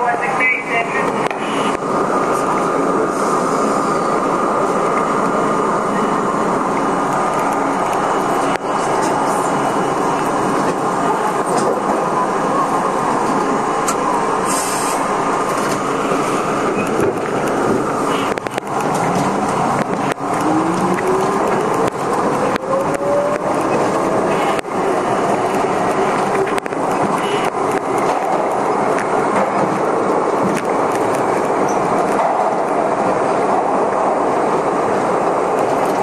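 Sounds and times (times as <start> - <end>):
subway train rumble: 0.0 - 36.0
wheels clicking over rails: 14.9 - 33.1.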